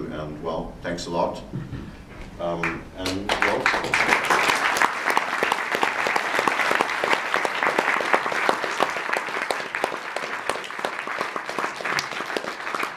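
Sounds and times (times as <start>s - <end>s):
audience applauding: 2.6s - 12.9s.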